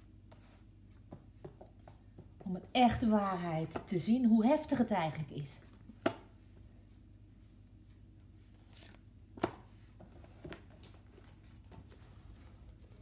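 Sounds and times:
faint low room hum: 0.0s - 13.0s
cards being handled: 8.6s - 9.6s.

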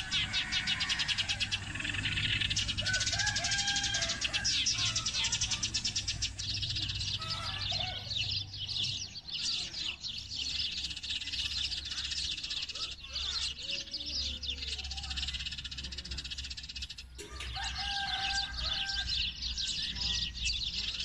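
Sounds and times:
sparrows chirping: 0.0s - 21.0s.

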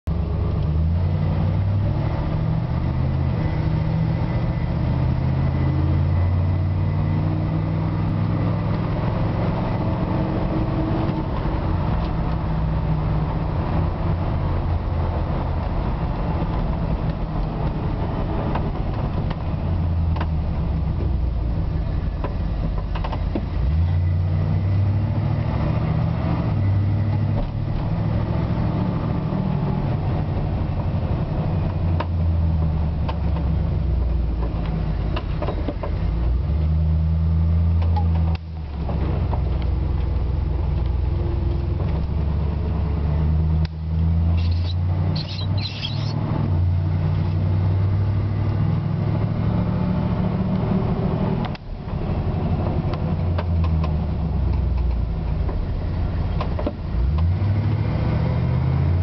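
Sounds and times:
road noise: 0.0s - 59.0s.

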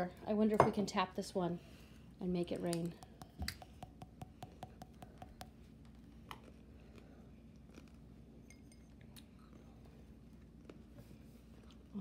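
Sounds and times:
fingertip tapping on glass: 3.0s - 5.6s.

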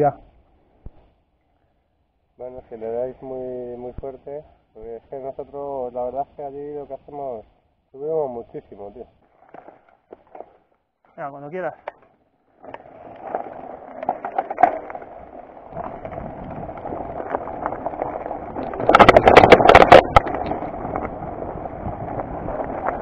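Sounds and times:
bike clicking and knocking over rocks: 11.9s - 23.0s
bike rattling hard: 12.5s - 23.0s
bike tyres on loose stones: 12.5s - 23.0s.

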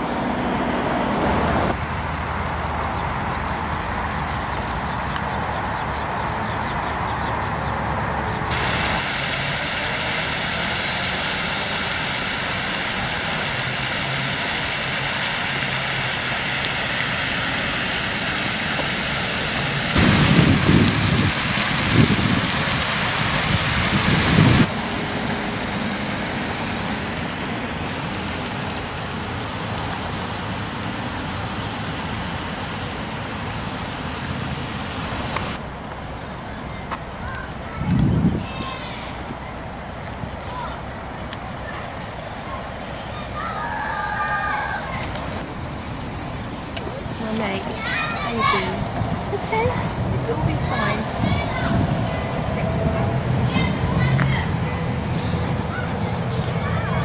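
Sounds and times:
road traffic noise: 0.0s - 57.0s.

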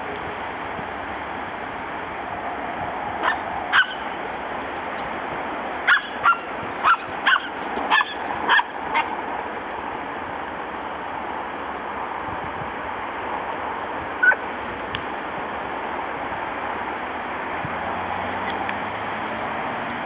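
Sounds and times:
puppy yipping: 3.2s - 4.0s, 5.9s - 9.1s, 13.4s - 14.8s.

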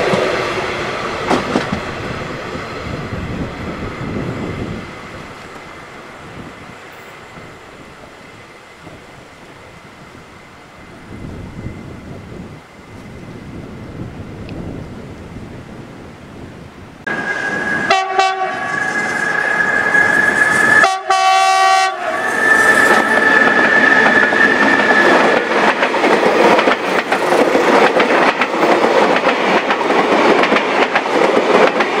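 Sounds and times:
train rumble and wheel clatter: 0.0s - 32.0s
train air horn: 17.1s - 25.2s.

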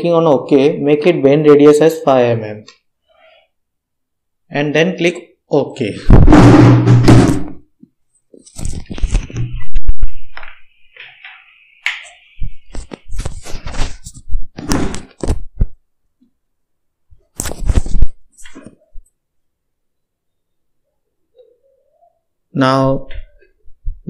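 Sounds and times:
irregular knocks and thuds: 6.1s - 7.6s.

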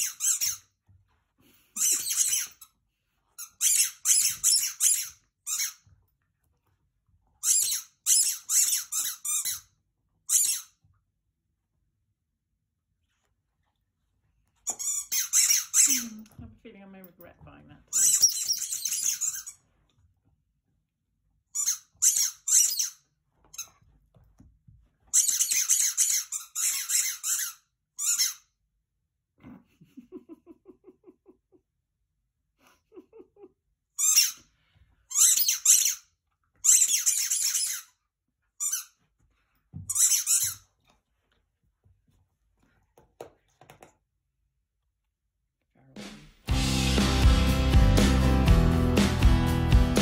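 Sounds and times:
squeaky toy squeaking: 0.0s - 0.7s, 1.8s - 2.7s, 3.4s - 5.8s, 7.4s - 9.7s, 10.3s - 10.8s, 14.7s - 16.2s, 17.9s - 19.6s, 21.6s - 23.0s, 25.1s - 28.5s, 34.0s - 34.4s, 35.1s - 38.0s, 38.6s - 39.0s, 39.9s - 40.7s.

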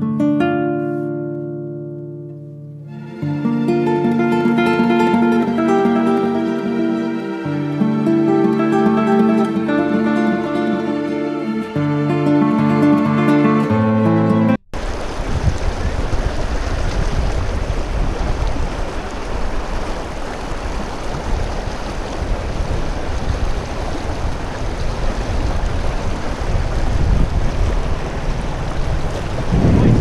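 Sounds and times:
river rushing over rocks: 14.8s - 30.0s.

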